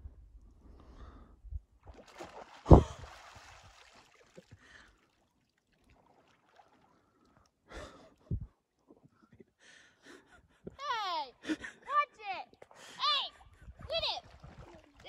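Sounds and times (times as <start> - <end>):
water splashing: 1.8 - 7.4, 13.8 - 15.0.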